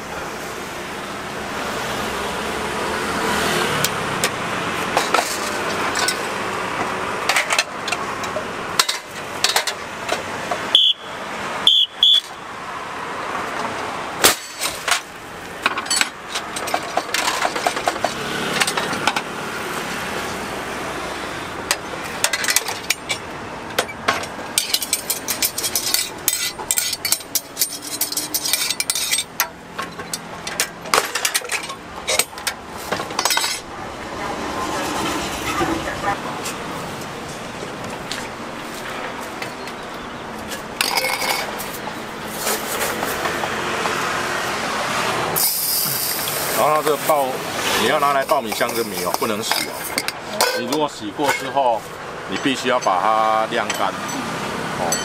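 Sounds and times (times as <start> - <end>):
metal clanks and clicks: 5.0 - 10.6, 13.6 - 19.3, 21.6 - 33.7, 40.5 - 41.8
metallic clinking and rattling: 21.6 - 33.7, 40.5 - 43.3.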